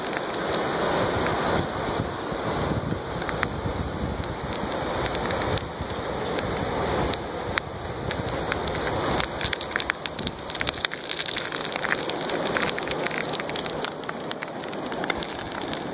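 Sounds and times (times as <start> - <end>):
small crackling clicks: 0.0 - 1.4, 3.2 - 3.6, 4.2 - 15.9
ocean surf hissing: 0.0 - 10.5.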